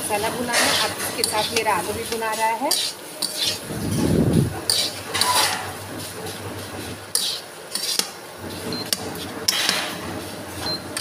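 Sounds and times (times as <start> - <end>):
spatula scraping a pan: 0.2 - 10.0.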